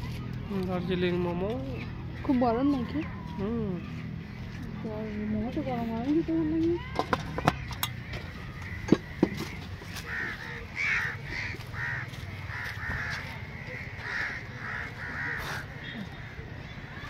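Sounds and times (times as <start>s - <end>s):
crows cawing: 7.3s - 17.0s.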